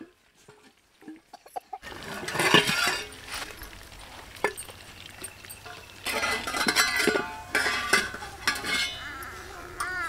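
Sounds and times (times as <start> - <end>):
steel lids clinking on clay pots: 0.4 - 3.8, 4.4 - 10.0
steel spoon clattering in pot: 5.5 - 9.1.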